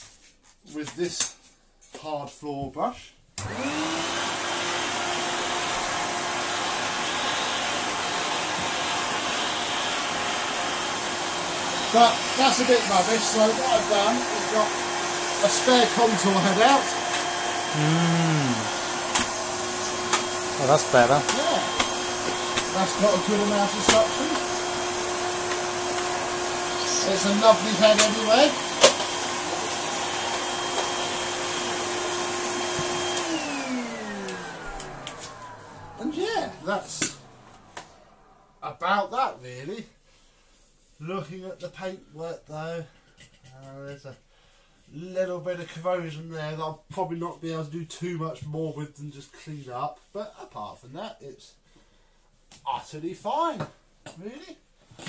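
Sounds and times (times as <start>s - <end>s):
vacuum cleaner whining: 3.4s - 39.4s.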